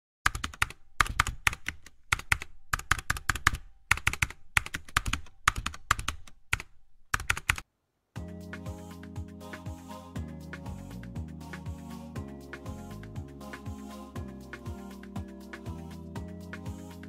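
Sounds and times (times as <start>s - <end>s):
keyboard typing clicks: 0.2s - 7.6s.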